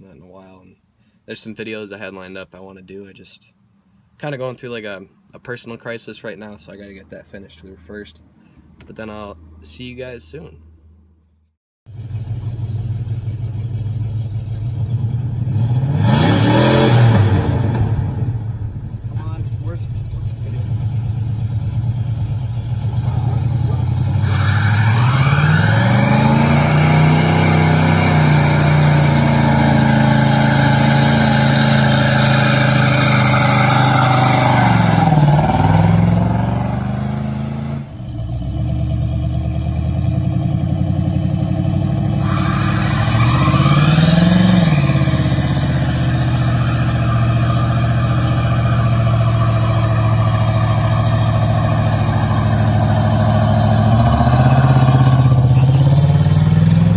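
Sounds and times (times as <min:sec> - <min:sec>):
car engine revving: 0:11.9 - 0:56.9
car engine idling: 0:17.9 - 0:56.9.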